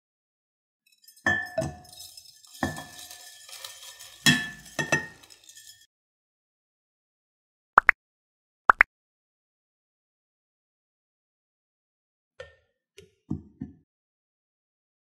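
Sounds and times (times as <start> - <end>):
glass bowl clinking: 0.9 - 5.9.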